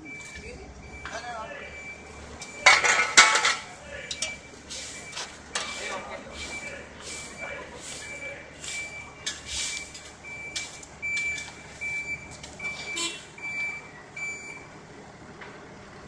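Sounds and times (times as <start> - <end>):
machine warning alarm beeping: 0.0 - 14.7
shovels scraping soil and gravel: 4.7 - 11.5.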